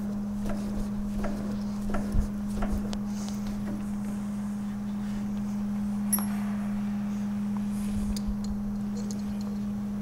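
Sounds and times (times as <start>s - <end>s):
steady low hum: 0.0s - 10.0s
metal clink with high ring: 6.1s - 6.7s.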